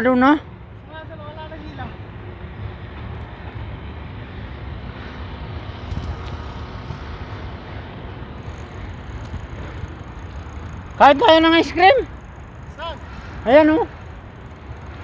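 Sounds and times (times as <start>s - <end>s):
road noise: 0.0s - 15.0s
wind rumble on microphone: 2.0s - 12.6s.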